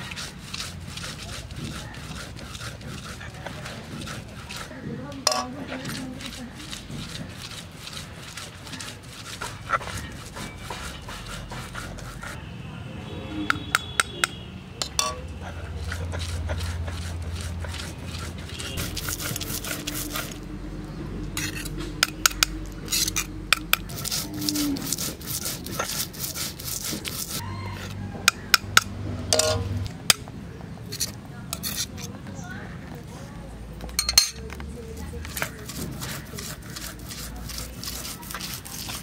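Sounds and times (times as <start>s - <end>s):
stone roller grinding: 0.0s - 12.4s, 13.5s - 30.3s, 30.9s - 32.2s, 33.8s - 39.0s
stone knocking on stone: 5.2s - 5.6s, 13.6s - 15.2s.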